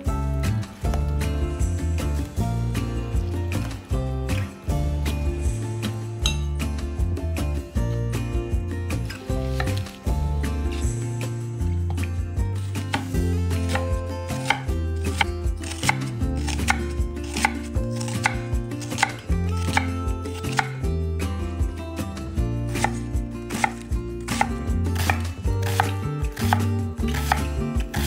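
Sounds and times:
background music with bass: 0.0 - 28.0
knife chopping on cutting board: 9.4 - 10.0, 12.8 - 20.8, 22.8 - 28.0.

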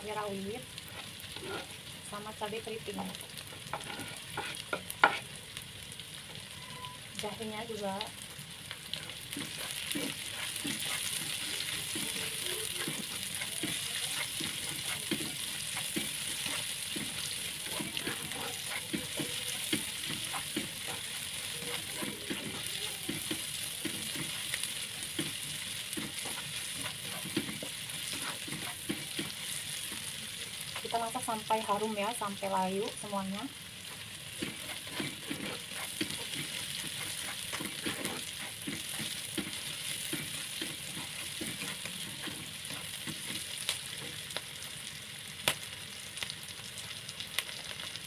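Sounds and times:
vegetables sizzling in hot oil: 0.0 - 48.0
spatula scraping and knocking: 1.0 - 1.8, 3.7 - 5.2, 9.3 - 30.0, 34.4 - 44.1.

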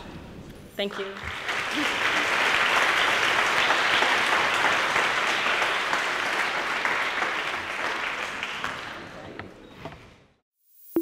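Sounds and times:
audience applauding: 0.9 - 9.4.

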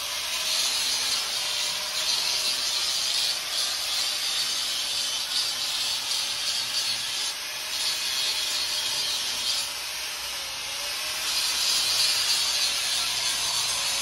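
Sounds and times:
welding arc hissing: 0.0 - 9.8.

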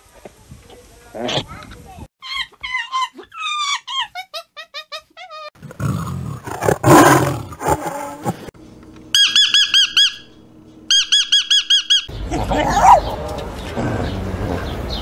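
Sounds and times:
parrots chirping: 9.2 - 13.4.

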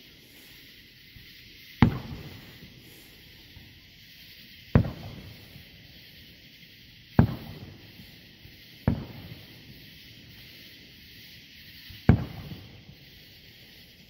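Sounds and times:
firework booms: 0.2 - 14.0
rumble after booms: 1.0 - 6.2, 7.1 - 10.7, 11.6 - 13.4.

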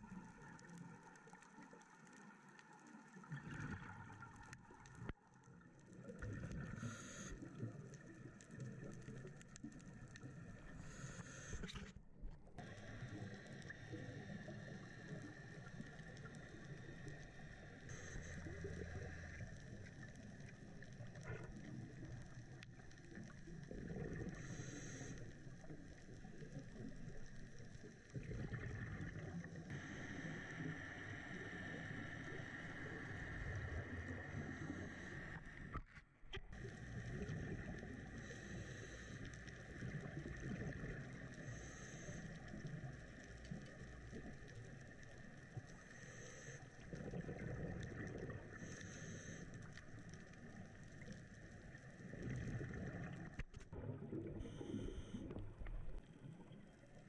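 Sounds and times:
underwater water noise: 0.0 - 57.0
scuba exhaust bubbles hissing: 6.0 - 9.2, 12.6 - 35.7, 36.6 - 55.6
diver breathing through regulator: 10.7 - 11.8, 38.0 - 39.7, 41.4 - 42.5, 48.5 - 49.7, 54.4 - 55.4.

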